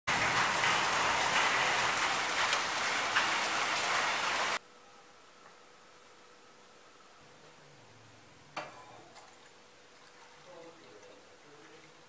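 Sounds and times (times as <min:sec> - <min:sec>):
heavy rain pouring: 0:00.1 - 0:04.6.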